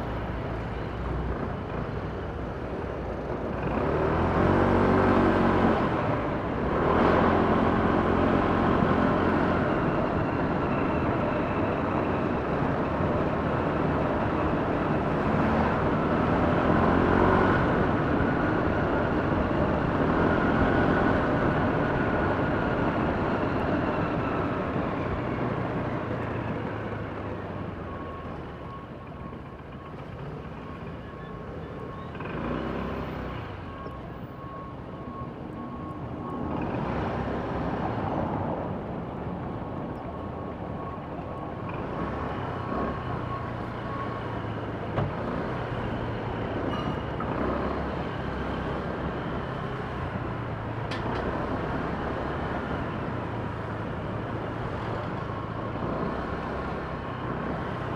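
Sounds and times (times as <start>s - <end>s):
city traffic: 0.0s - 57.9s
road and wind noise: 0.0s - 57.9s.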